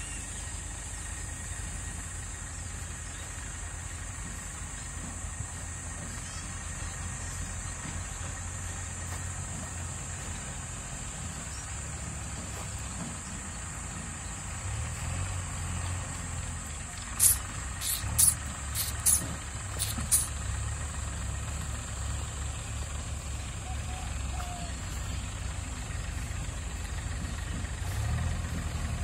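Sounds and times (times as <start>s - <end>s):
diesel engine running: 0.0s - 29.0s
short sharp high-pitched sounds: 17.2s - 20.3s.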